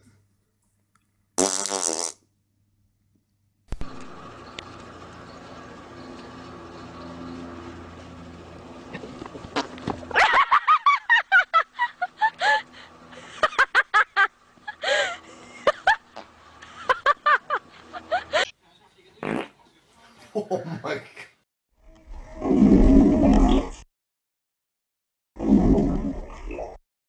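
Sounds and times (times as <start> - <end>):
horse farting: 1.4 - 2.2, 9.4 - 9.9, 19.2 - 19.5
low background hum: 2.8 - 21.2.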